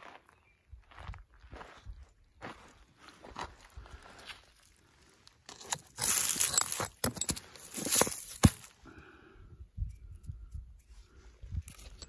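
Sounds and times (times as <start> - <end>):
footsteps crunching on gravel: 0.0 - 4.8, 5.5 - 8.8
hard objects knocking on rock: 6.6 - 8.7.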